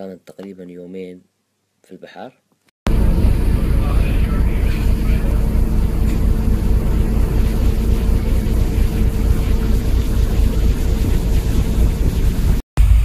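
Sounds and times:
rush of ship's wake: 2.9s - 12.6s
ship engines rumbling: 2.9s - 12.6s
steady engine hum: 2.9s - 13.0s.

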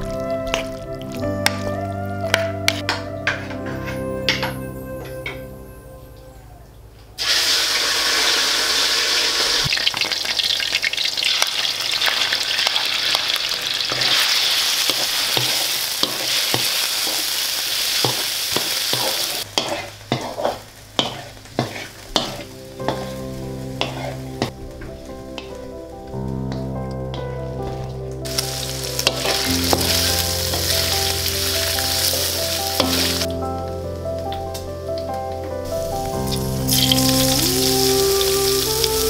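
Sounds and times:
meat sizzling in hot oil: 7.2s - 24.6s, 28.3s - 33.3s, 35.7s - 39.0s
wooden spatula stirring: 18.0s - 25.7s.

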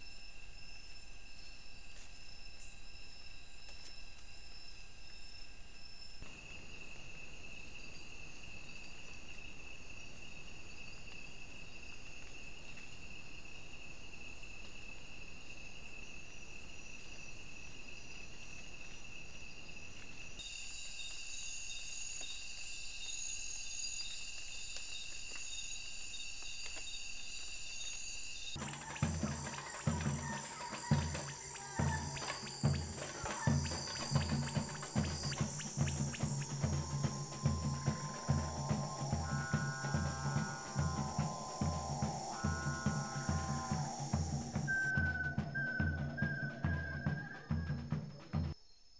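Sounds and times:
insects trilling: 0.0s - 48.9s
music with a steady beat: 28.6s - 44.7s.

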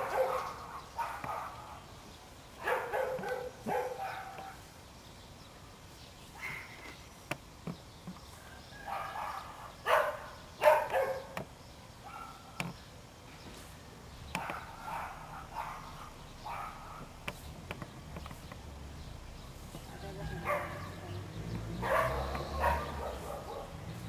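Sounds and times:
dog barking: 0.0s - 1.9s, 2.6s - 4.7s, 8.8s - 11.4s, 12.0s - 12.6s, 14.4s - 17.1s, 20.3s - 21.2s, 21.8s - 24.0s
sharp clicks: 14.2s - 14.7s.

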